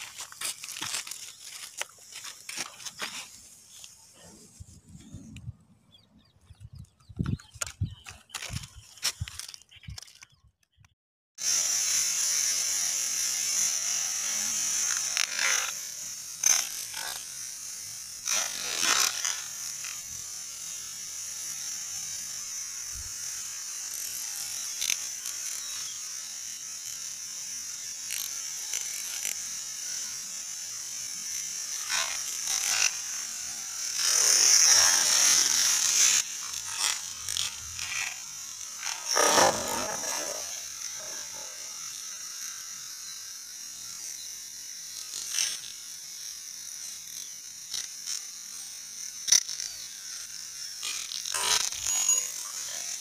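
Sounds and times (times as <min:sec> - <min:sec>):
sharp little crackles: 0:00.0 - 0:05.4, 0:06.5 - 0:10.8
firework tablets fizzing hiss: 0:31.6 - 0:41.8.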